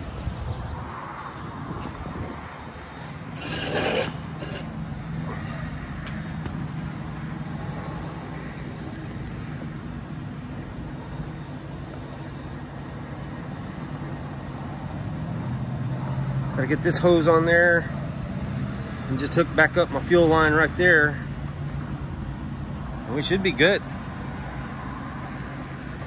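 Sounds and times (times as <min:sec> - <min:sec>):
hands scraping on carburetor: 0:03.3 - 0:04.8.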